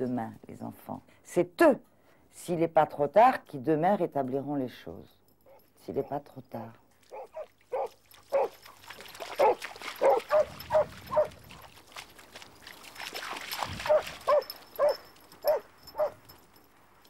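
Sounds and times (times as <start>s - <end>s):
dog yelping barks: 7.1s - 8.6s, 9.4s - 11.4s, 13.9s - 16.2s.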